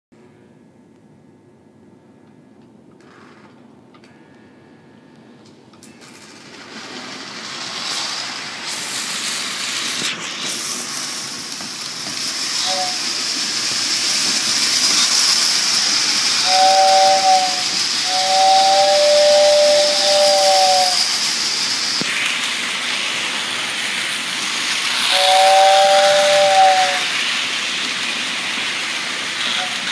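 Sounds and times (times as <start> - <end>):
toy train running on track: 5.9 - 29.9
two-tone train whistle: 12.5 - 13.4, 14.7 - 21.3, 24.9 - 27.3, 29.4 - 29.9.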